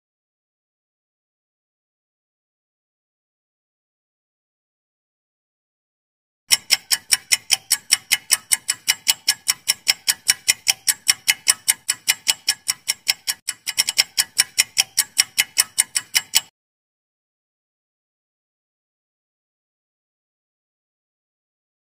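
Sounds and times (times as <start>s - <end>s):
fast clock ticking: 6.5s - 16.5s.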